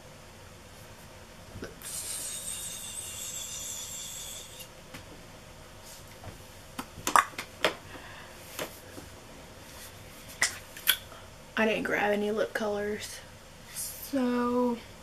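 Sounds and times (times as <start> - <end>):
hiss: 1.8 - 4.7.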